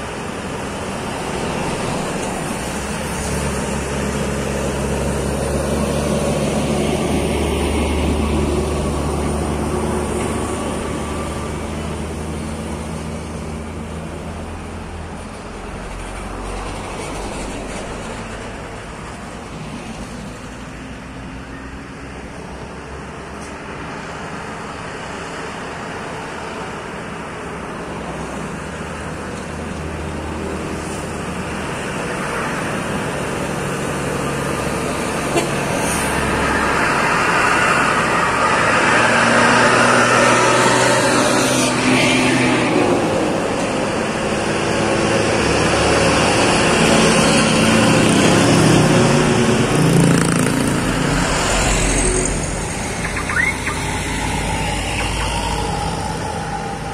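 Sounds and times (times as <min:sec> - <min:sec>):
diesel truck engines: 0:00.0 - 0:56.9
truck passing whoosh: 0:30.2 - 0:56.9.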